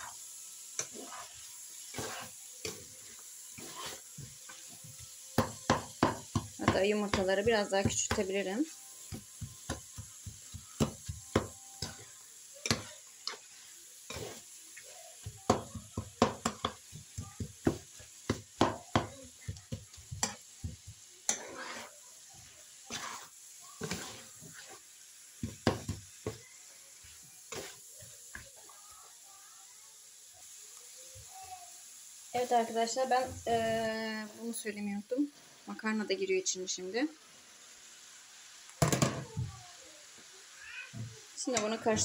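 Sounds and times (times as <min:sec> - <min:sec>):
spatula scraping a frying pan: 0:00.0 - 0:28.7
food sizzling: 0:00.0 - 0:42.0.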